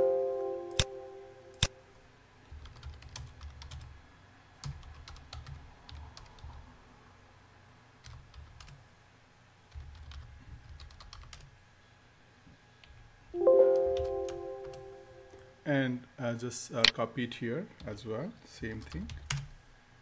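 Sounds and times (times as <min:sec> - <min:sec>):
computer keyboard typing: 0:02.5 - 0:03.9, 0:04.6 - 0:06.6, 0:08.0 - 0:08.8, 0:09.7 - 0:11.5, 0:13.7 - 0:14.9.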